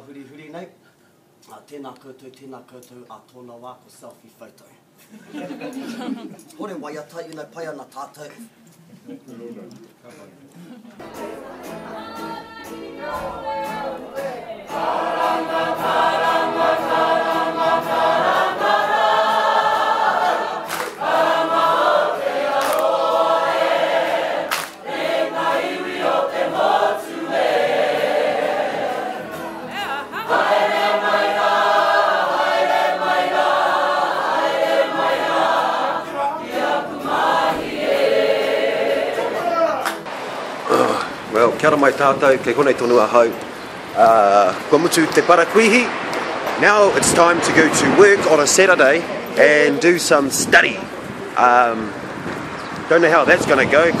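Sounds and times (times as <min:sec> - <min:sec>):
group singing in harmony: 0:11.0 - 0:41.3.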